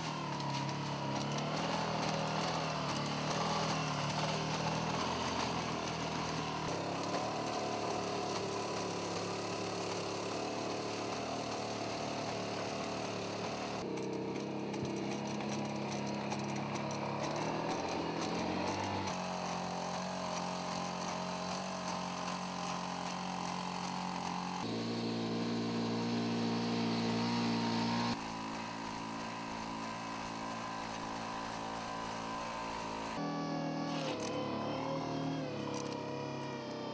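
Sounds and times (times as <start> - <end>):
robot engine droning: 12.8 - 36.9.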